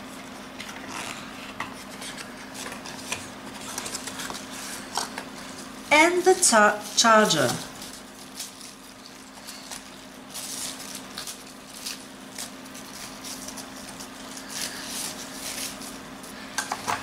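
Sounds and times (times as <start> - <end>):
faint steady hum: 0.0 - 17.0
plastic packaging crinkling: 6.7 - 16.4.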